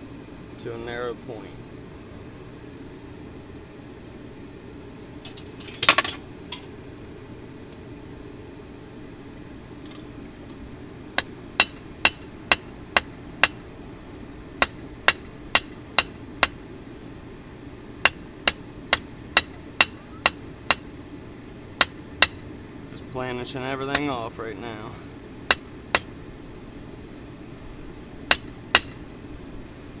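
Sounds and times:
hammer striking metal on anvil: 0:11.2 - 0:13.6, 0:14.6 - 0:16.6, 0:18.0 - 0:20.8, 0:25.5 - 0:26.1, 0:28.3 - 0:29.0.

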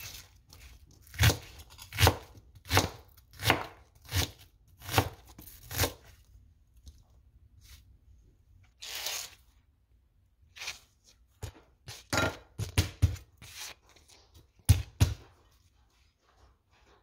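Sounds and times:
knife chopping on plastic board: 0:01.0 - 0:06.1, 0:11.4 - 0:13.6, 0:14.6 - 0:15.3.

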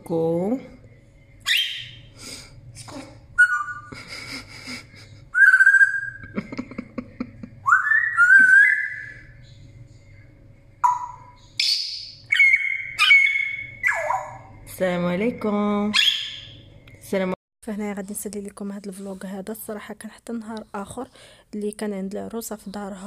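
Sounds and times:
parrot whistling and calling: 0:01.4 - 0:02.1, 0:03.4 - 0:03.9, 0:05.3 - 0:06.3, 0:07.6 - 0:09.4, 0:10.8 - 0:14.5, 0:15.9 - 0:16.6.

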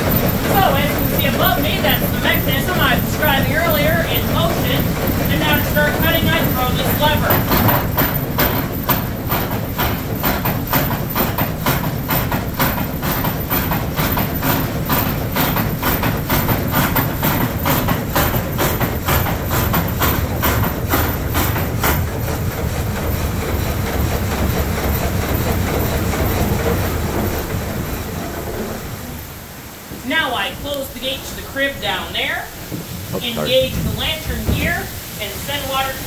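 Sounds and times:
saw knocking rhythmically: 0:00.0 - 0:29.0
rushing water: 0:26.0 - 0:36.0.

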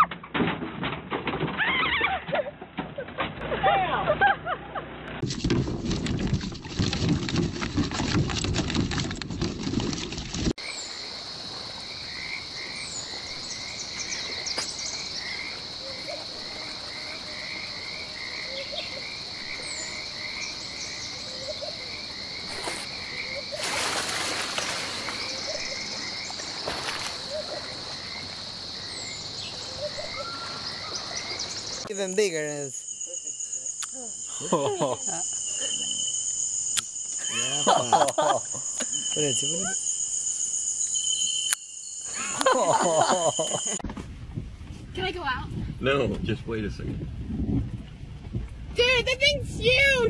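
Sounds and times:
frogs croaking: 0:10.6 - 0:43.8
insects trilling: 0:10.6 - 0:43.8.

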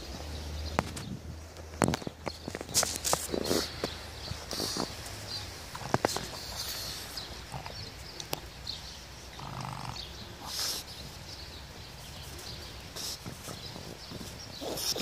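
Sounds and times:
dog snuffling: 0:02.5 - 0:08.5, 0:09.3 - 0:15.0.

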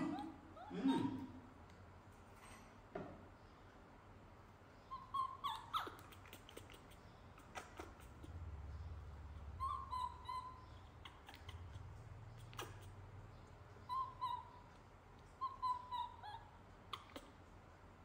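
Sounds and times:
baby monkey whimper calls: 0:00.0 - 0:01.4, 0:04.8 - 0:13.1, 0:13.8 - 0:17.5.

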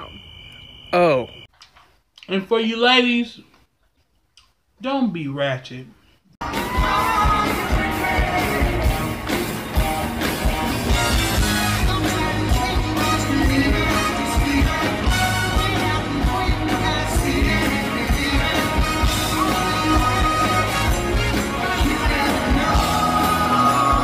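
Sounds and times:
live pop-rock band: 0:06.4 - 0:24.0
steady drum beat: 0:06.4 - 0:24.0
person singing: 0:11.6 - 0:24.0.

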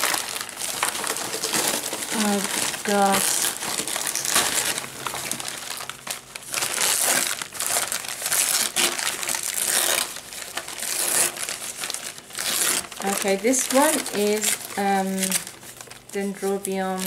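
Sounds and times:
paper and plastic crinkling: 0:00.0 - 0:17.0.

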